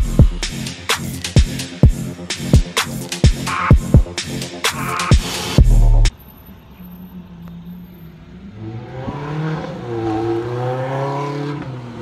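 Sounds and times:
car engine accelerating: 0:07.4 - 0:12.0.

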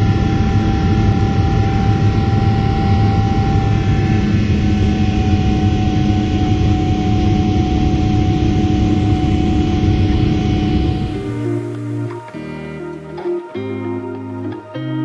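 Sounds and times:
jet engine rushing in cabin: 0:00.0 - 0:12.2.

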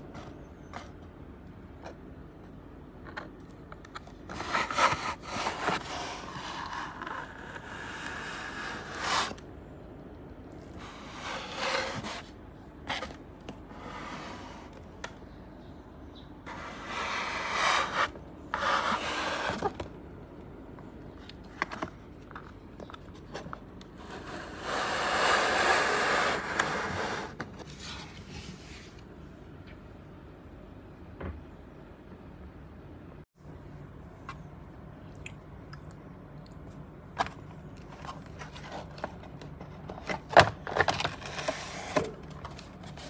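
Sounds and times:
cardboard boxes scraping on table: 0:04.3 - 0:09.4, 0:10.8 - 0:14.8, 0:16.5 - 0:19.8, 0:24.0 - 0:28.9.

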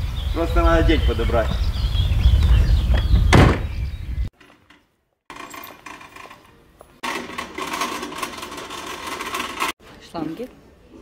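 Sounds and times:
wind rumbling on microphone: 0:00.0 - 0:04.3
loud thump: 0:02.9 - 0:03.8
shopping trolley rattling on tiles: 0:05.3 - 0:09.8.

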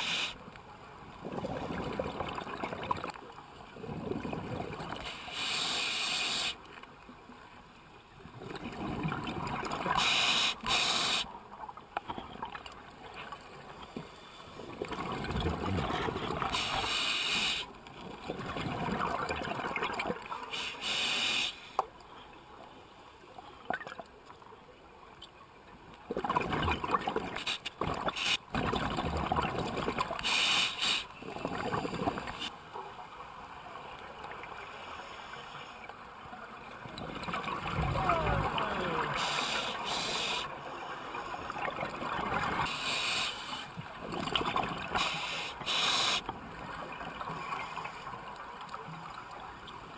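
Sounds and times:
scuba regulator inhale hiss: 0:00.0 - 0:00.4, 0:05.1 - 0:06.6, 0:10.0 - 0:11.3, 0:16.6 - 0:17.7, 0:20.5 - 0:21.8, 0:30.2 - 0:31.1, 0:39.1 - 0:40.5, 0:42.7 - 0:43.7, 0:45.0 - 0:46.2.

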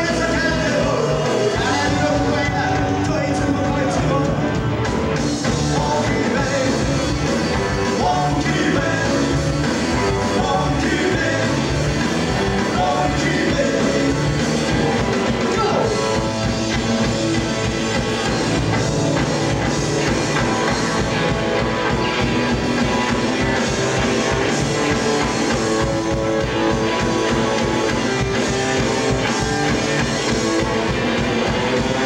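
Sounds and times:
person singing: 0:00.0 - 0:04.6, 0:05.5 - 0:11.8, 0:12.5 - 0:16.1
drums: 0:00.0 - 0:32.0
electric guitar: 0:00.0 - 0:32.0.

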